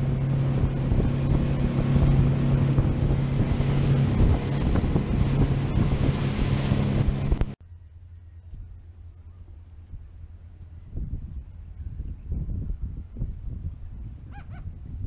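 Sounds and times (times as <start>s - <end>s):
rushing wake water: 0.0s - 7.6s
wind buffeting microphone: 0.0s - 7.6s, 9.9s - 15.0s
outboard motors droning: 0.0s - 14.2s.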